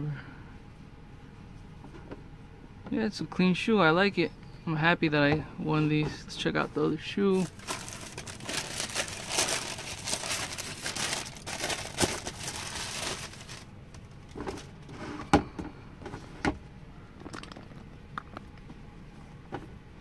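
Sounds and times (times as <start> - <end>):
tissue paper crinkling: 7.3 - 14.7.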